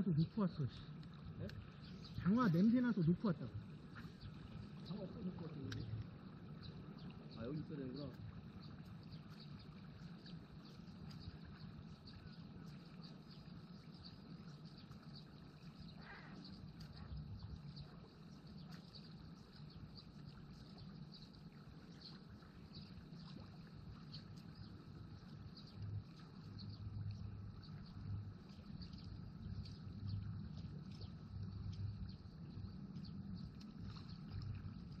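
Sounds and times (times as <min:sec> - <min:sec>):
low steady rumble: 0:00.0 - 0:35.0
faint high ticks: 0:05.6 - 0:06.8, 0:08.0 - 0:21.3, 0:22.0 - 0:35.0.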